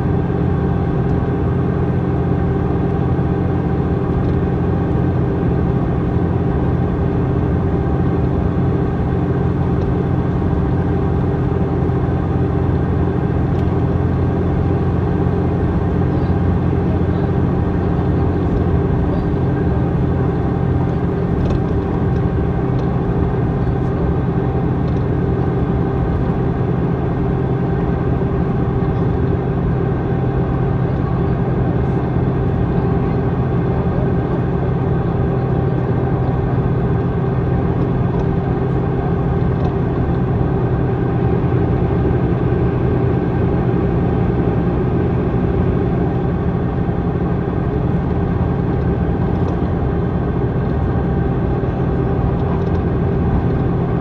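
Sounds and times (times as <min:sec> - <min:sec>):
bus diesel engine running: 0:00.0 - 0:54.0.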